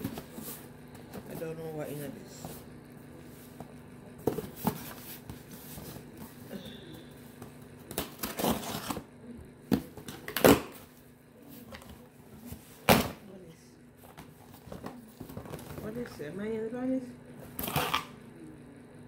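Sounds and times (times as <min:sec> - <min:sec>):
cardboard and paper rustling: 0:00.0 - 0:06.5, 0:14.0 - 0:16.1.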